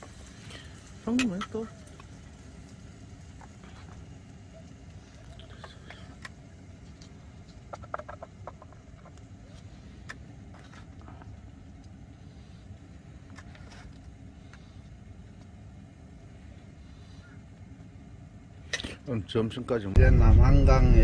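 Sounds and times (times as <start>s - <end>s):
low rumble: 20.0s - 21.0s.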